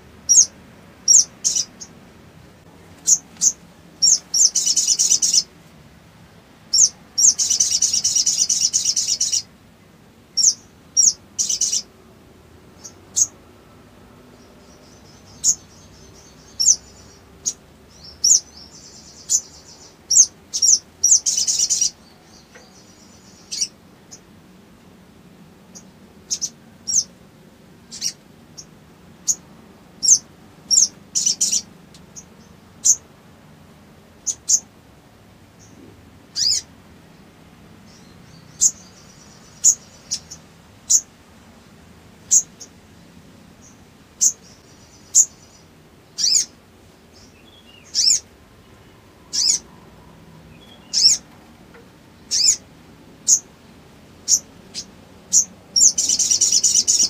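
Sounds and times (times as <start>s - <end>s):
bird buzzy trills: 0.0s - 2.0s, 2.9s - 5.5s, 6.7s - 9.5s, 14.2s - 24.3s, 27.8s - 33.1s, 35.6s - 36.7s, 43.6s - 51.4s, 52.1s - 53.5s, 54.2s - 57.0s
bird chirping: 0.2s - 2.0s, 3.0s - 5.5s, 6.7s - 9.5s, 10.3s - 11.9s, 12.7s - 13.4s, 14.2s - 24.3s, 25.6s - 27.2s, 27.8s - 33.1s, 34.2s - 34.7s, 35.5s - 41.2s, 42.2s - 42.8s, 43.6s - 51.5s, 52.1s - 53.5s, 54.2s - 57.0s.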